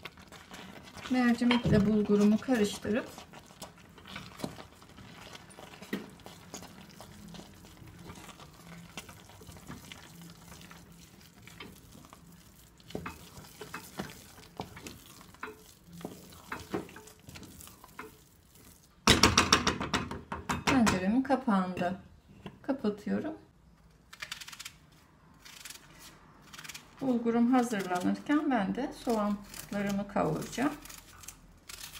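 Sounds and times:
wooden spoon stirring in metal pot: 0.0 - 22.6.

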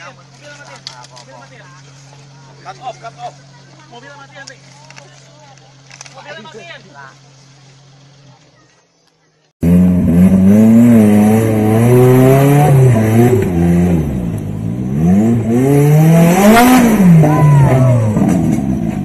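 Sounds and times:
buggy engine revving hard: 9.6 - 19.0.

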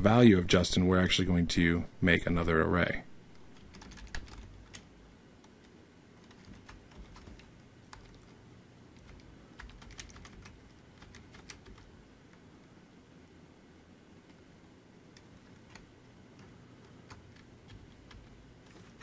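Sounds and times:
keyboard typing: 3.5 - 8.4, 9.0 - 11.9, 15.1 - 19.0.

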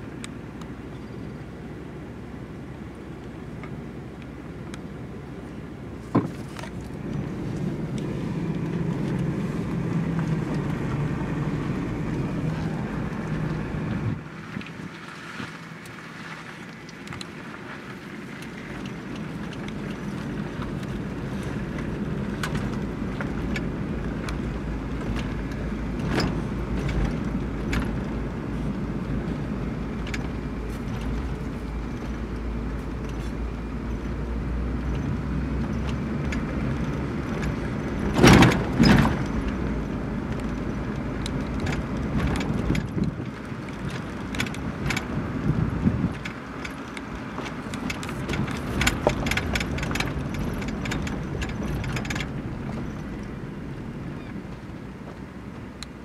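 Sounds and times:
car engine and tyre rumble: 0.0 - 56.0
small clicks and rattles: 34.8 - 45.4, 46.0 - 53.4.

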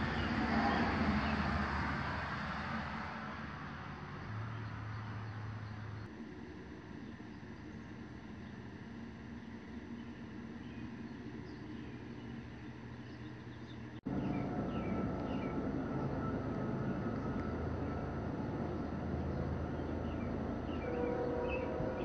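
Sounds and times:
steady low rumble: 5.9 - 22.0.

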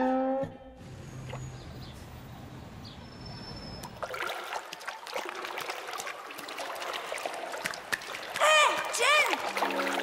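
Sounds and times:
water splashing and lapping: 1.1 - 2.2, 3.7 - 10.0.

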